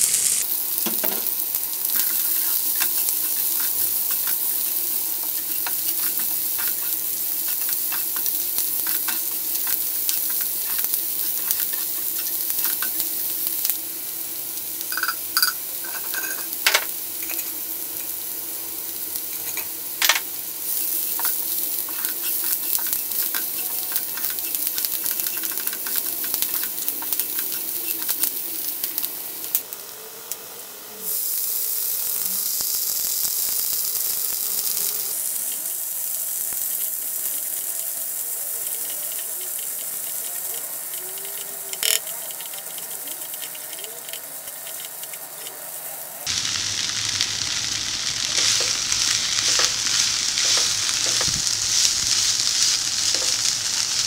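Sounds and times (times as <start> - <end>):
food sizzling in oil: 0.0 - 54.0
spatula stirring in pan: 0.8 - 13.2, 20.6 - 29.0, 38.6 - 45.8, 48.3 - 54.0.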